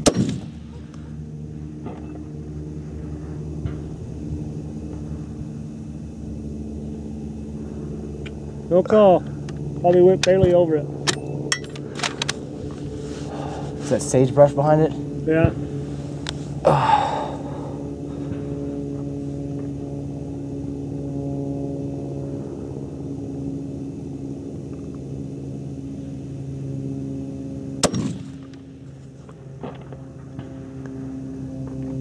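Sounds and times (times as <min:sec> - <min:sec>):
rifle shot: 0:00.0 - 0:00.8, 0:27.8 - 0:28.5
steady low hum: 0:00.0 - 0:32.0.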